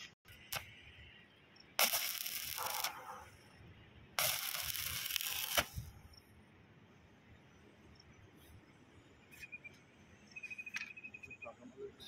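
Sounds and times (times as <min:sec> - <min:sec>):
welding arc crackling: 0:00.3 - 0:00.8, 0:01.8 - 0:03.1, 0:04.2 - 0:05.9.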